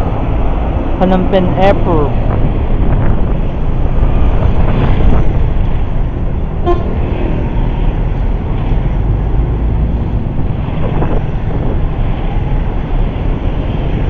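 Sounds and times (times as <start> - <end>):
traffic rumble: 0.0 - 14.0
vehicle horn toot: 6.6 - 7.0.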